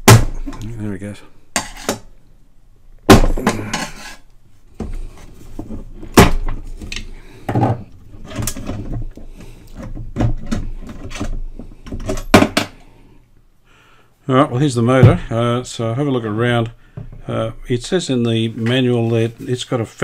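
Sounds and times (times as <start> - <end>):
handling and rubbing noise: 3.7 - 12.2, 17.0 - 20.0.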